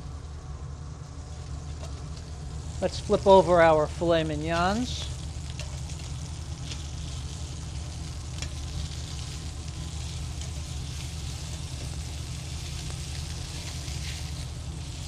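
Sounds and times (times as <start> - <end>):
low hum: 0.0 - 15.0
steaks sizzling in oil: 4.4 - 15.0.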